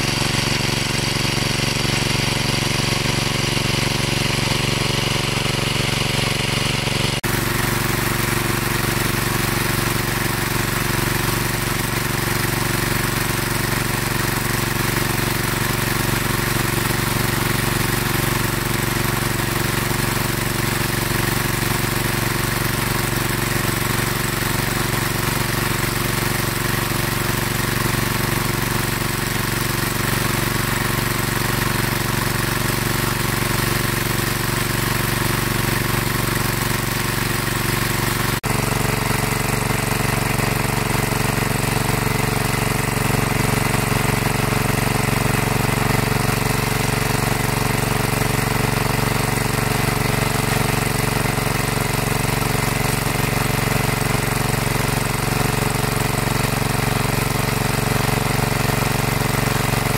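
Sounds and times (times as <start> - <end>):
engine-driven water pump running: 0.0 - 59.9.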